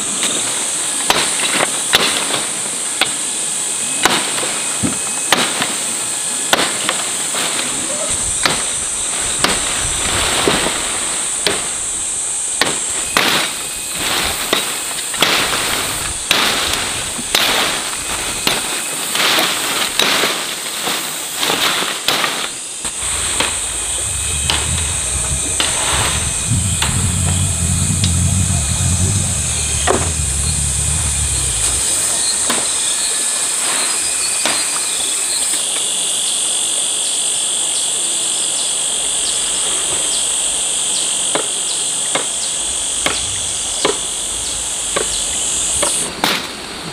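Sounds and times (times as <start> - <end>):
buzz of insects: 0.2 - 46.4
small engine running: 22.9 - 32.7.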